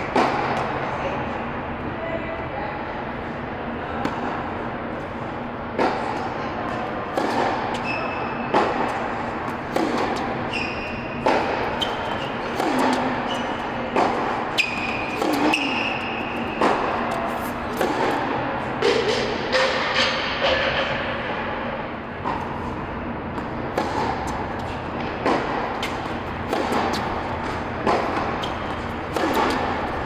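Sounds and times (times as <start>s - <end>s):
tennis ball struck by racket: 0.1s - 0.8s, 5.8s - 20.8s, 23.3s - 30.0s
shoes squeaking on court: 7.3s - 18.2s, 23.4s - 30.0s.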